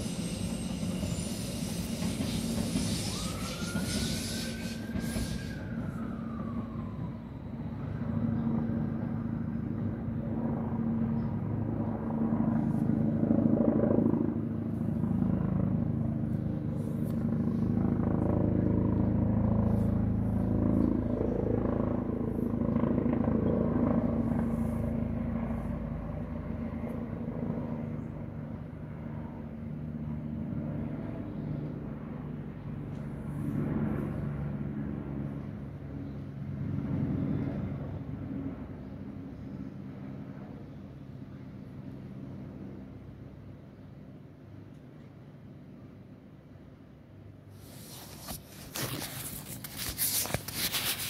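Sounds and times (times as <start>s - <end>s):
high squeal gliding down: 0.0s - 7.7s.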